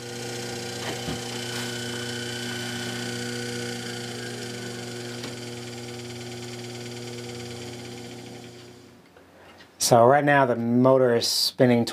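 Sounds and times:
electric motor humming: 0.0s - 9.0s.

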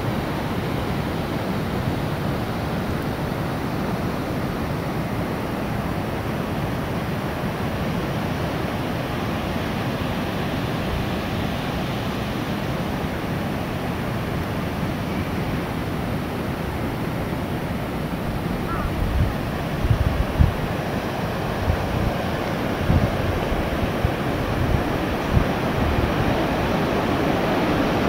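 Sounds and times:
sea surf breaking on rocks: 0.0s - 28.0s
wind buffeting microphone: 18.2s - 28.0s.

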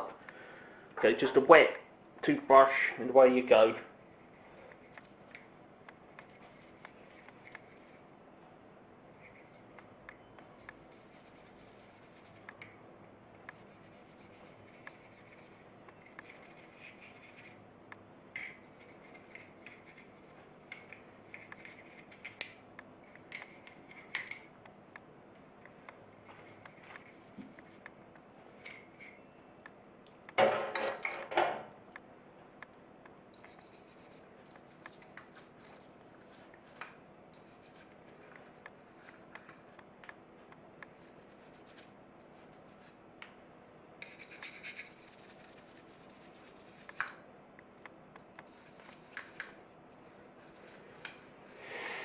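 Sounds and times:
toothbrush scrubbing: 10.7s - 12.5s, 16.2s - 17.6s, 44.0s - 47.0s
knock and rattle: 30.4s - 31.7s.

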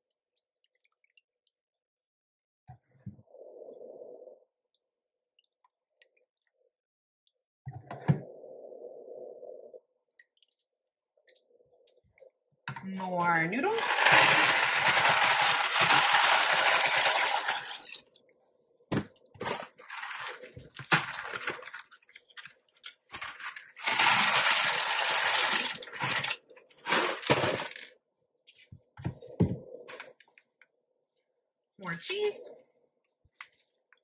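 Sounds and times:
dry pasta pouring and rattling: 13.8s - 18.0s, 19.5s - 21.8s, 23.1s - 27.8s.

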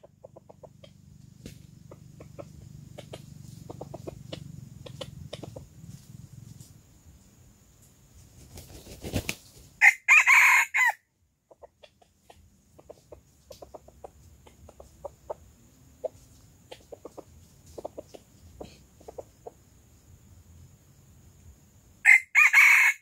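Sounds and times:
rooster flapping wings: 8.2s - 9.8s
rooster crowing: 9.8s - 11.0s, 22.0s - 23.0s.

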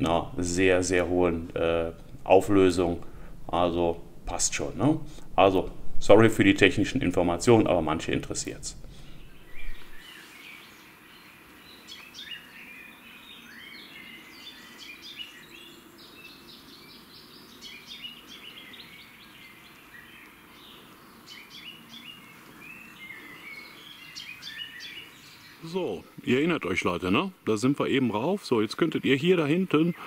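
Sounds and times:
faint outdoor hiss: 0.0s - 30.0s
songbirds chirping and singing: 7.4s - 30.0s.

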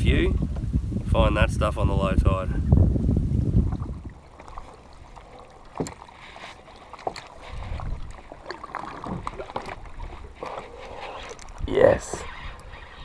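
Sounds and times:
water lapping against boat hull: 0.1s - 13.0s
light knocks from boat and gear: 5.6s - 10.7s.

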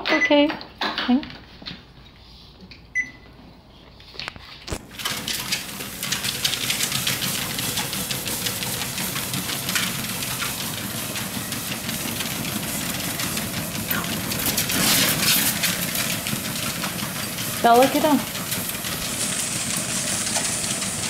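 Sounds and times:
treadmill short beep: 0.1s - 0.5s, 2.9s - 3.3s, 11.2s - 12.2s
treadmill click: 4.7s - 21.0s
treadmill belt running: 4.8s - 21.0s.

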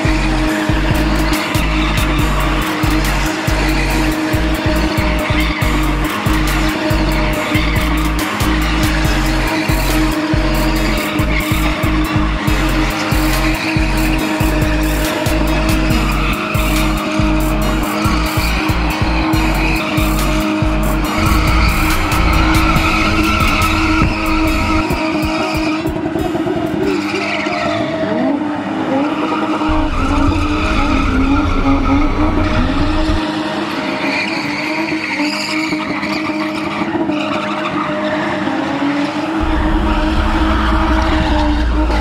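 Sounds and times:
bass-heavy music: 0.0s - 26.4s, 29.7s - 33.4s, 39.4s - 42.0s
car engine at high revs: 0.0s - 42.0s
tyres squealing: 0.5s - 25.6s.

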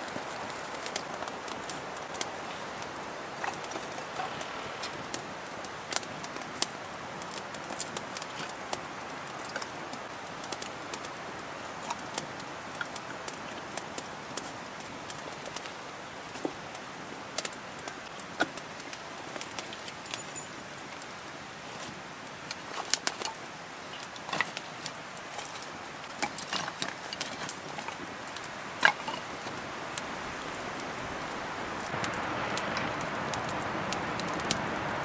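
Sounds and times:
fire hiss: 0.0s - 8.4s
campfire crackling and popping: 0.0s - 35.0s.

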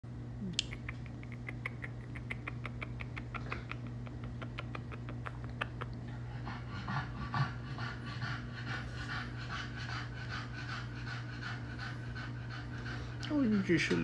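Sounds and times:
steady low hum: 0.0s - 14.0s
small smacking clicks: 0.5s - 6.0s.

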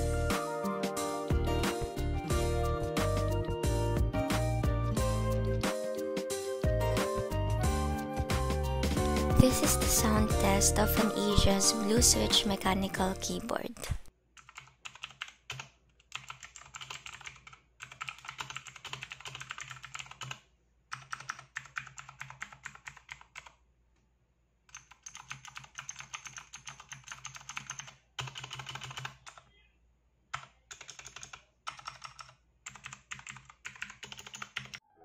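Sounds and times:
clicky mechanical keyboard typing: 14.4s - 23.6s, 24.7s - 29.5s, 30.3s - 34.8s.

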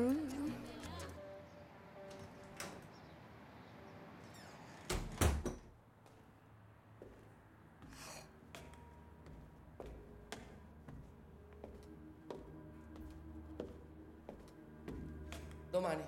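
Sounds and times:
door shutting with heavy thud: 4.8s - 5.7s.

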